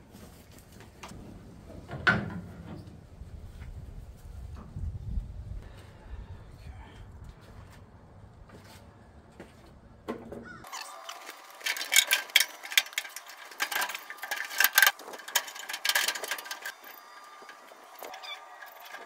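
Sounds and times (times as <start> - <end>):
metal parts clanking and rattling: 10.7 - 19.0.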